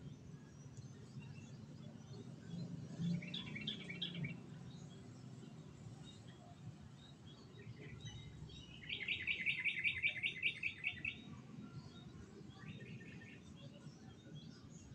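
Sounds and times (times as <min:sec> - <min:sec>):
faint bird chirps: 0:00.4 - 0:14.9
songbird rapid trill: 0:08.1 - 0:11.3.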